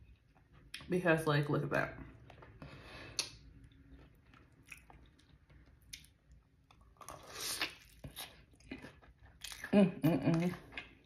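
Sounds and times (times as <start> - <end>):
wet chewing: 2.2 - 11.0.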